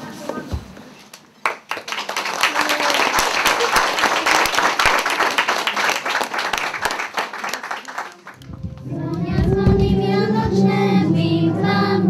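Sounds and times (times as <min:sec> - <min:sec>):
crowd applauding: 0:01.4 - 0:08.4.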